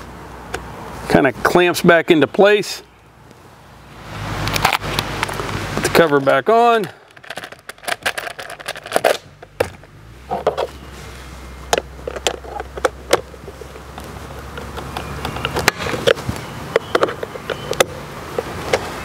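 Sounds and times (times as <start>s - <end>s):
clicks and knocks of cover fitting: 4.4s - 10.8s, 11.7s - 18.9s.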